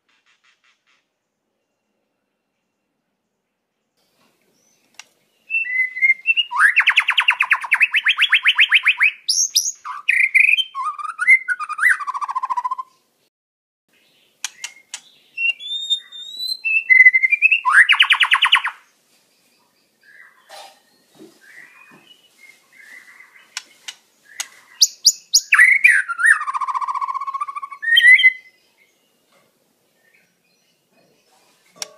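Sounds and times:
bird singing with trills: 4.6 - 13.0, 13.9 - 29.3
sharp clicks: 14.4 - 15.1, 23.5 - 24.6.

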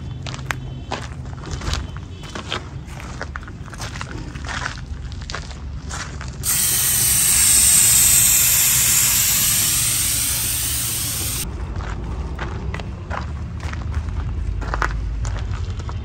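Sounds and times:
light clicks at valve: 6.4 - 11.4
air hissing from tyre valve: 6.4 - 11.5.

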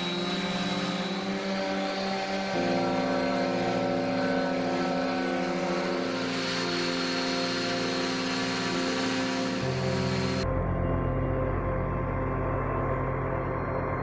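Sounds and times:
orbit sander motor whir: 0.0 - 10.4
sandpaper hissing on wood: 5.9 - 10.4.

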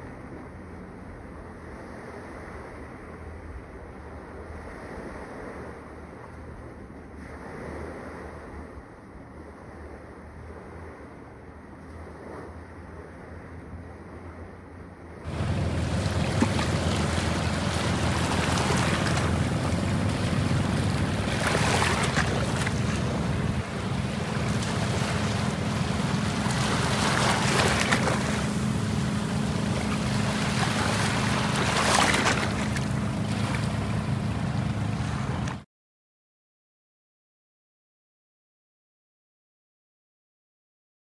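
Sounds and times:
sea waves washing and splashing: 0.0 - 35.6
steady low rumble: 8.4 - 35.6.

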